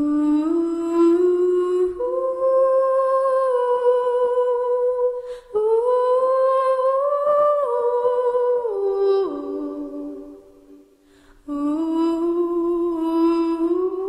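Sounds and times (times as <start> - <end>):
quick breath: 11.0 - 11.4
person humming melody: 11.5 - 14.0.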